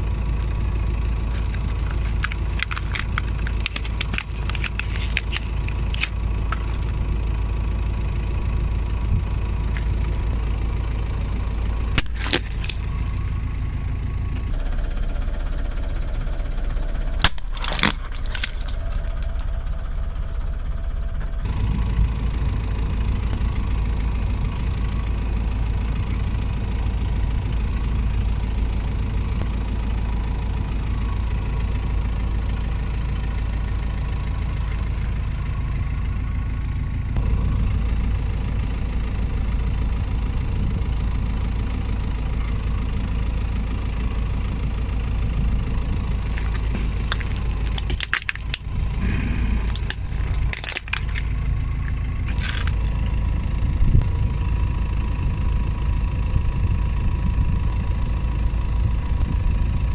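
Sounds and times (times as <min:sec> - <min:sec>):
car engine idling: 0:00.0 - 0:59.9
plastic toys cracking under tyre: 0:01.2 - 0:07.0, 0:11.9 - 0:13.3, 0:17.2 - 0:19.4, 0:46.1 - 0:53.0.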